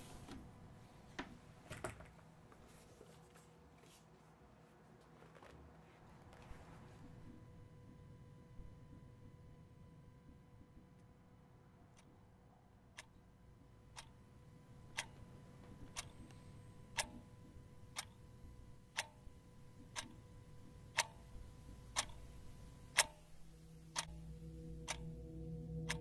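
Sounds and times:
faint steady hum: 0.0s - 26.0s
alarm clock ticking: 13.8s - 26.0s
low droning tone: 23.4s - 26.0s.

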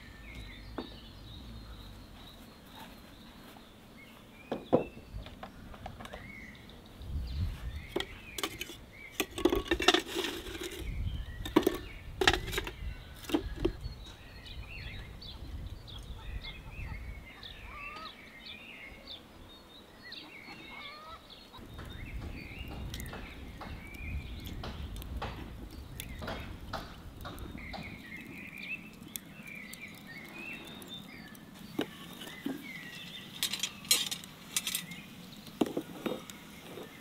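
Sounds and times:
birds chirping: 0.0s - 37.0s
metal buckets knocking and clanking: 7.9s - 13.8s.

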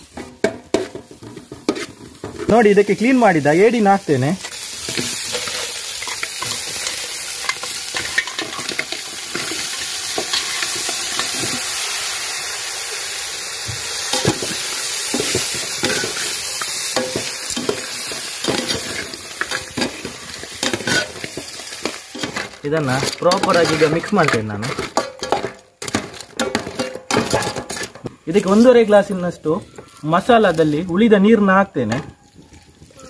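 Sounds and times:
food sizzling in a metal pot: 0.0s - 33.0s
metal spoon clacking against pot: 23.0s - 28.0s.

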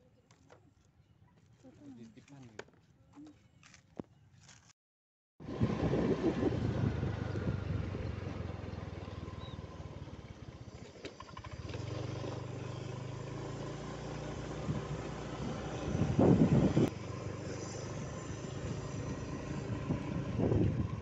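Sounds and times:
motorcycle engine running: 5.4s - 21.0s.

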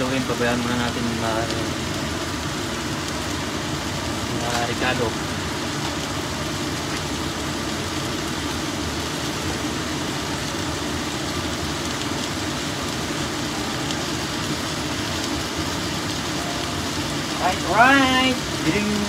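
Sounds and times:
beef sizzling in oil: 0.1s - 19.0s
low hum: 12.9s - 17.8s.

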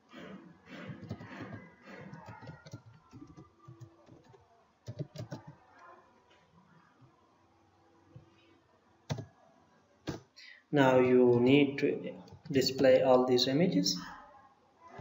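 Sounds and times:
keyboard typing: 0.8s - 5.6s, 9.1s - 9.4s, 10.1s - 10.3s.

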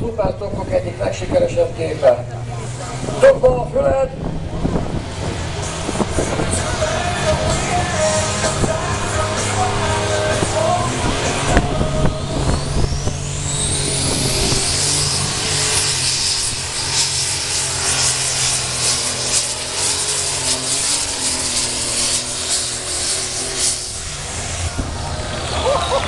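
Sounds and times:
turbo whine: 0.0s - 26.0s
tractor engine running under load: 2.3s - 26.0s.

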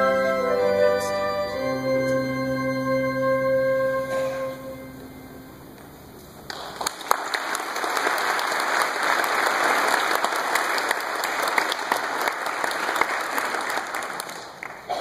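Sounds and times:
music: 0.0s - 5.8s
audience applauding: 6.5s - 15.0s.

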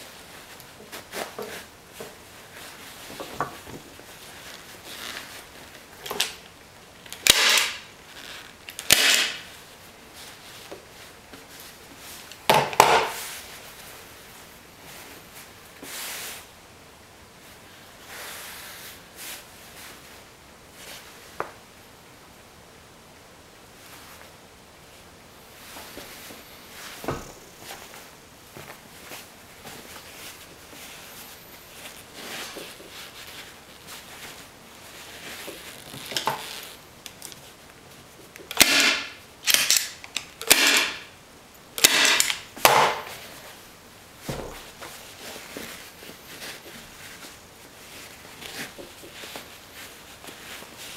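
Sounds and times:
fabric rustling and swishing: 0.0s - 6.0s, 23.7s - 38.2s, 43.1s - 50.9s
staple gun firing: 7.2s - 7.8s, 8.8s - 9.4s, 38.5s - 41.0s, 41.8s - 43.0s.

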